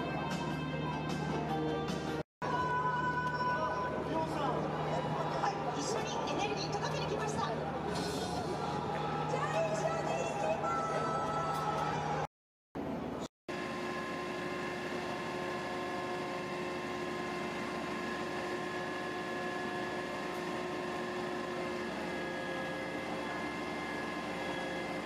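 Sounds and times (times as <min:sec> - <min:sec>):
ladder truck mechanical drone: 0:11.2 - 0:25.0.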